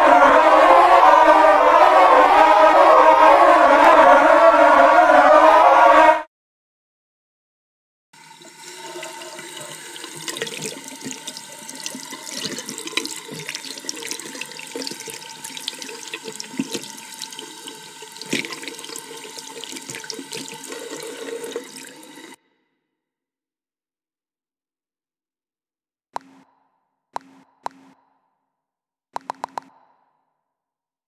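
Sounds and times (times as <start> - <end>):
tap water splashing into sink: 8.4 - 22.4.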